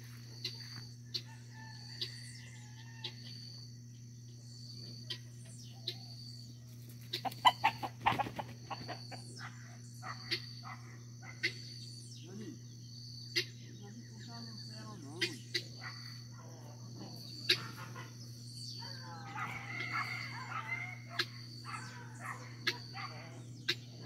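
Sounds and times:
chicken clucking: 0:07.0 - 0:09.2.

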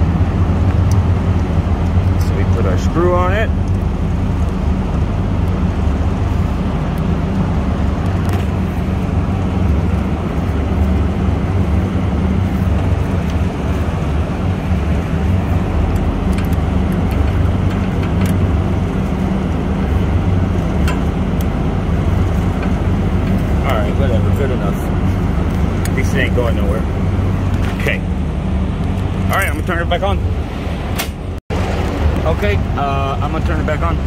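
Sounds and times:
machinery droning: 0:00.0 - 0:34.0.

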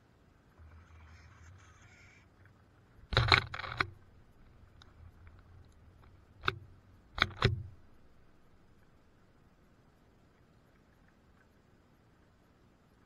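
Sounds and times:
bird pecking on wooden feeder: 0:06.0 - 0:07.8.

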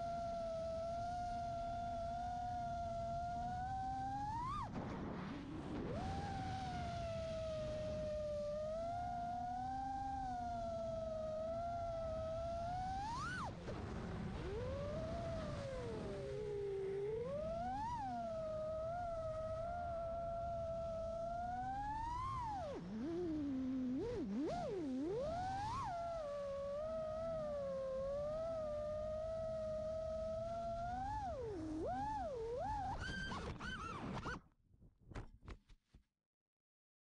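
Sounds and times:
quadcopter motors whining: 0:14.4 - 0:33.9.

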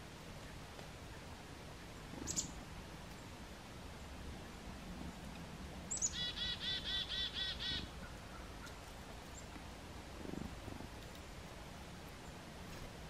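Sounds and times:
chickadee calling: 0:02.2 - 0:02.6, 0:05.9 - 0:08.8.

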